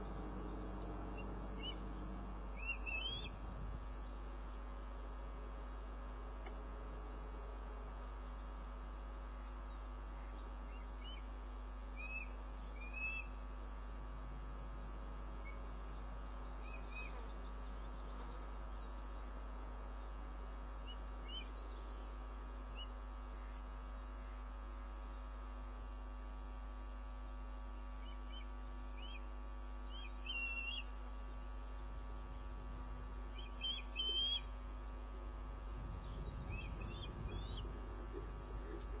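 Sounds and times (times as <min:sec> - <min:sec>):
electrical hum: 0:00.0 - 0:39.0
osprey whistled chirps: 0:02.6 - 0:03.3, 0:29.9 - 0:30.9, 0:33.4 - 0:34.5.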